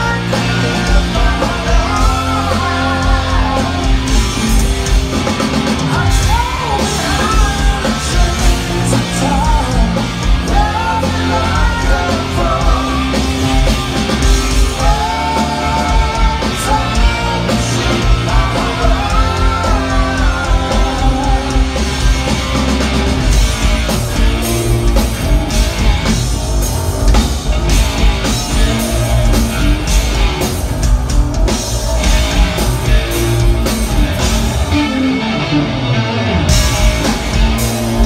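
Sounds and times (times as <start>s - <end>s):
man singing: 0.0s - 4.6s, 5.8s - 13.8s, 14.4s - 21.8s
bass guitar: 0.0s - 38.0s
drum kit: 0.0s - 38.0s
electric guitar: 0.0s - 38.0s.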